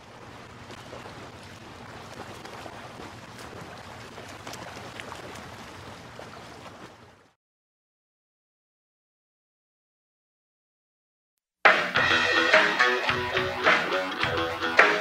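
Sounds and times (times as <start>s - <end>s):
ocean waves washing: 0.0s - 7.1s, 11.7s - 15.0s
crackling splashes: 0.0s - 7.4s.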